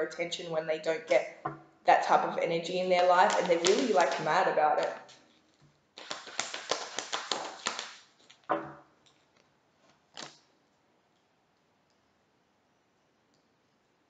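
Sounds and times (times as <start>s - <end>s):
cards being shuffled: 3.1s - 8.5s.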